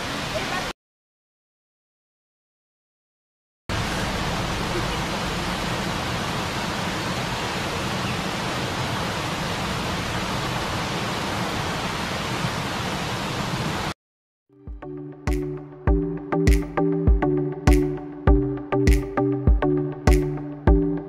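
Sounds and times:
waterfall rushing: 0:00.0 - 0:00.7, 0:03.7 - 0:14.0
electronic music with a beat: 0:14.6 - 0:21.0.

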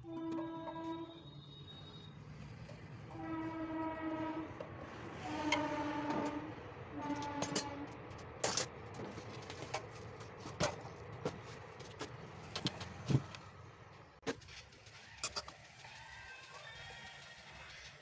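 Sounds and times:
horn blasts: 0:00.0 - 0:08.1.

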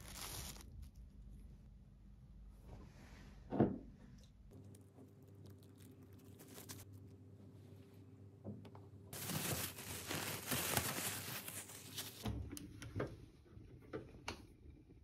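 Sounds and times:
refrigerator hum: 0:00.6 - 0:15.0
plastic wrap crinkling: 0:04.6 - 0:07.1, 0:09.1 - 0:12.3.

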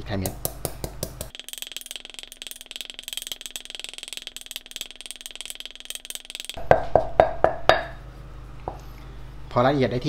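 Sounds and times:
stone pestle pounding in mortar: 0:00.2 - 0:01.4, 0:06.6 - 0:07.9.

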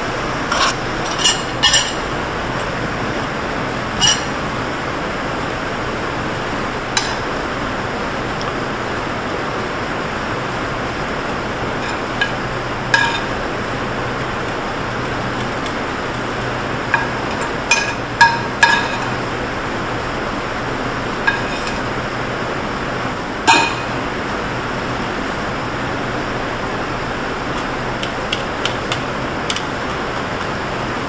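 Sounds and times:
kitchenware clinking: 0:00.5 - 0:02.0, 0:04.0 - 0:04.3, 0:17.0 - 0:19.2.

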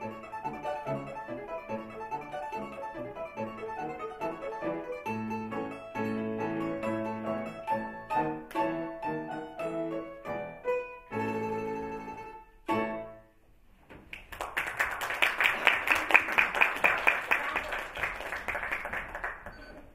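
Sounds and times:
domra and piano playing: 0:00.0 - 0:13.4
audience applause: 0:14.1 - 0:19.9.

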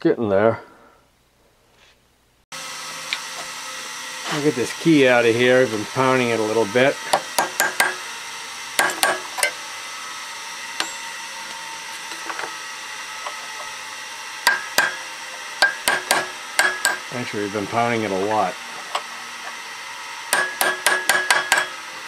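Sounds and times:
hammer striking steel punch: 0:07.1 - 0:08.0, 0:08.8 - 0:09.6, 0:10.8 - 0:11.2, 0:14.4 - 0:15.0, 0:15.6 - 0:17.1, 0:20.3 - 0:21.8.

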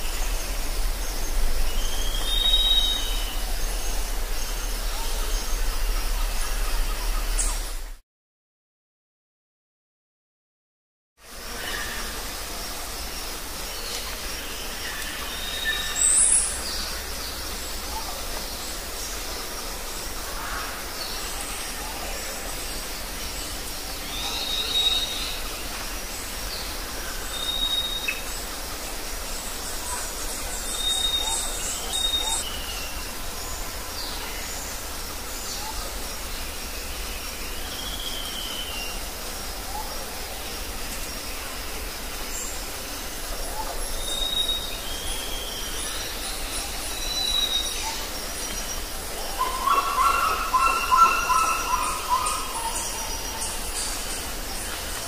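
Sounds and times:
high insect drone: 0:00.0 - 0:07.9, 0:11.2 - 0:55.0
birds whistling: 0:49.4 - 0:53.6.

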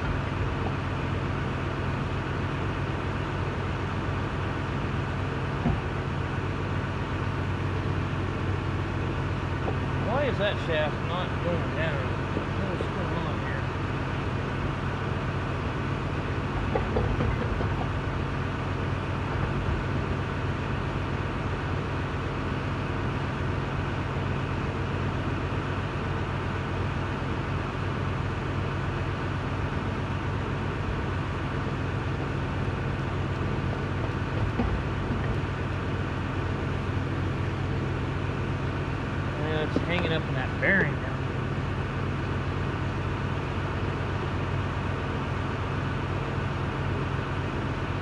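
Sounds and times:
machine drone: 0:00.0 - 0:48.0
faint knocks: 0:16.6 - 0:17.9.

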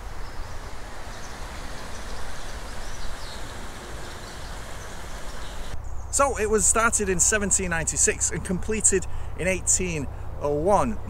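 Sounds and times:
river running over stones: 0:00.0 - 0:05.8.

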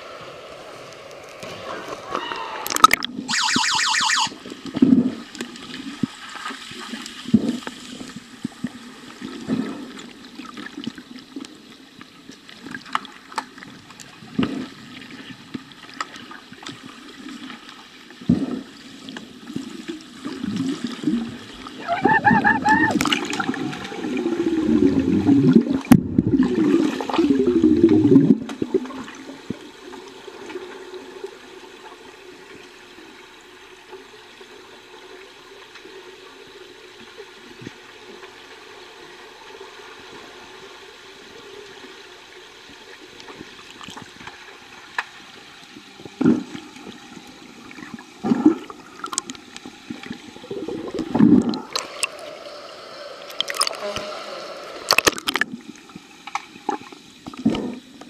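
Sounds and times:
underwater water churning and bubbling: 0:00.0 - 0:58.0
brief buzzing tone: 0:03.3 - 0:04.3, 0:53.4 - 0:55.0.

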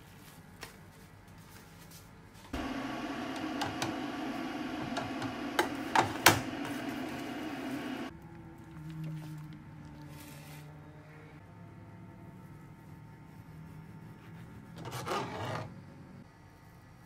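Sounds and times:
steady hum: 0:02.6 - 0:08.1.

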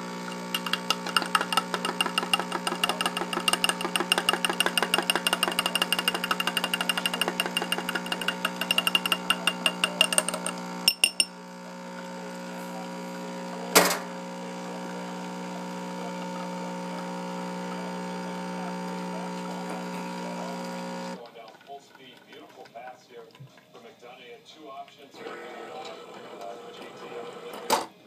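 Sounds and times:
coffee machine pump humming: 0:00.0 - 0:21.2
spoon clinking against glass: 0:00.5 - 0:11.4.

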